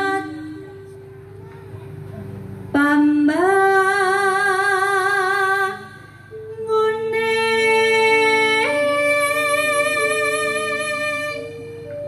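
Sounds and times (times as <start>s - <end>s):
woman singing long notes: 2.7s - 12.0s.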